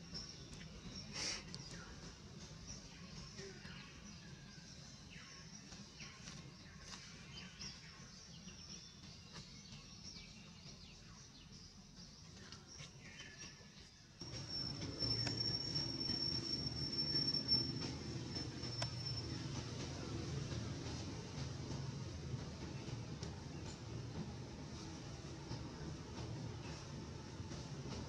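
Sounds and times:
insects droning: 0:14.2 - 0:19.2
high downward-sweeping chirps: 0:14.2 - 0:19.6.

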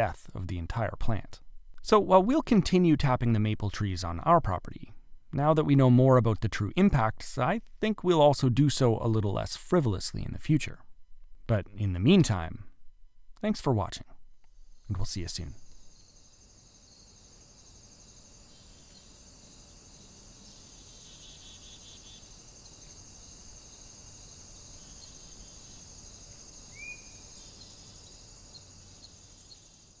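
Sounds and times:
high-pitched insect chorus: 0:14.5 - 0:30.0
short rising bird chirp: 0:24.6 - 0:29.7.

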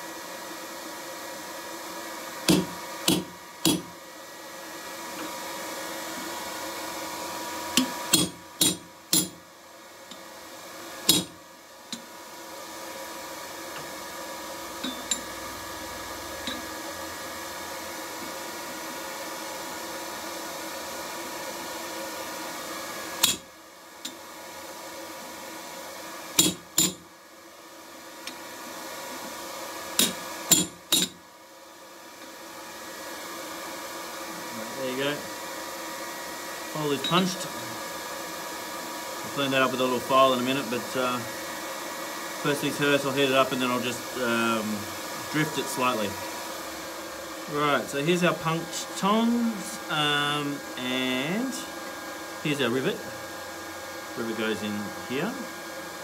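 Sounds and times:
steady background hum: 0:00.0 - 0:56.0
hammer striking metal punch: 0:02.5 - 0:03.9, 0:07.8 - 0:09.4, 0:11.1 - 0:11.4, 0:23.2 - 0:23.4, 0:26.4 - 0:27.0, 0:30.0 - 0:31.2.

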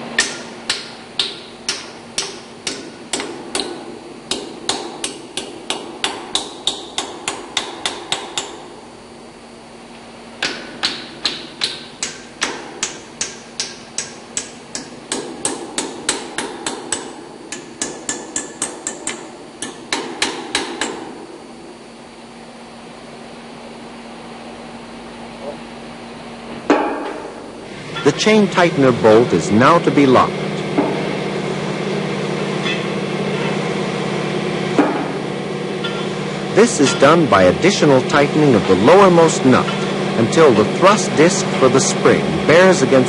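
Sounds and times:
hammer tapping on steel: 0:00.2 - 0:08.6, 0:10.4 - 0:21.0.

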